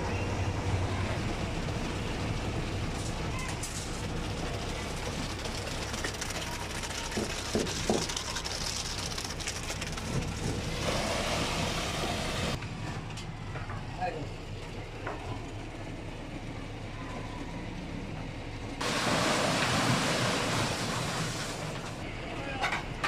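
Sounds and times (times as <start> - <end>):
diesel engine hum: 0.0 - 23.0
wet concrete pouring: 2.0 - 12.6, 18.8 - 22.1.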